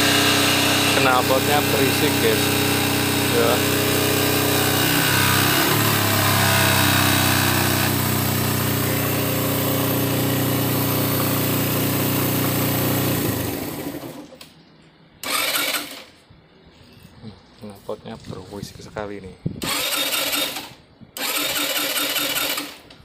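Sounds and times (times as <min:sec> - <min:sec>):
motorcycle engine idling: 0:00.0 - 0:06.6.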